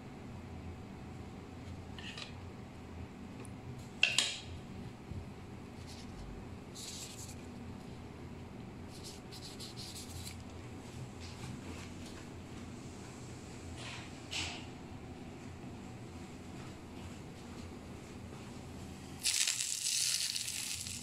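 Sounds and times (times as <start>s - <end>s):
low room hum: 0.0s - 21.0s
soft rustling scrapes: 5.7s - 8.0s.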